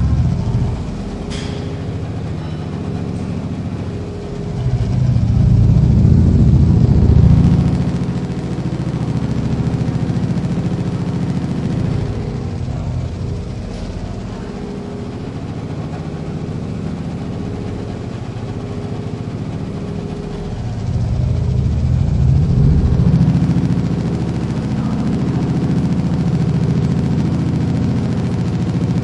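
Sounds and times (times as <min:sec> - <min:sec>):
treadmill motor humming: 0:00.0 - 0:29.0.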